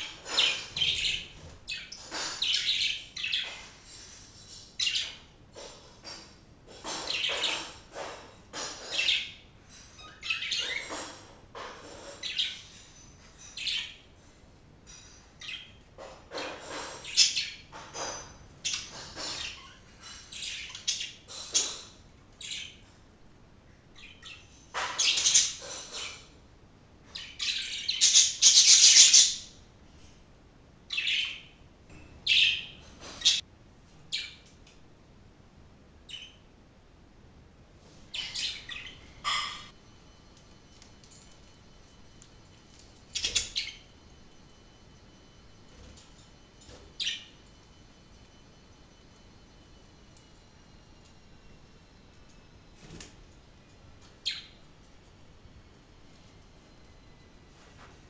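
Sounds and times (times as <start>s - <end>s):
budgerigars chirping and chattering: 0.0s - 14.0s, 15.4s - 22.8s, 24.0s - 26.3s, 27.1s - 29.5s, 30.9s - 31.5s, 32.2s - 33.4s, 38.1s - 39.7s, 43.1s - 43.9s.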